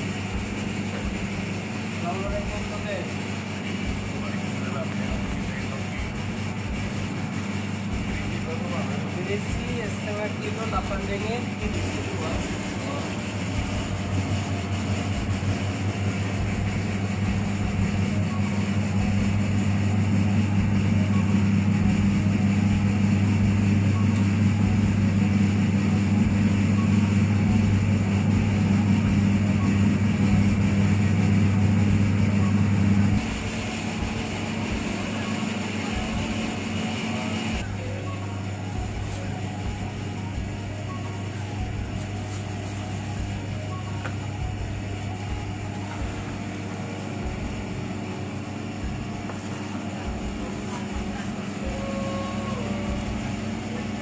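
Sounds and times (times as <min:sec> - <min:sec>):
paddle churning grated coconut: 0:00.0 - 0:25.3
electric motor running: 0:00.0 - 0:54.0.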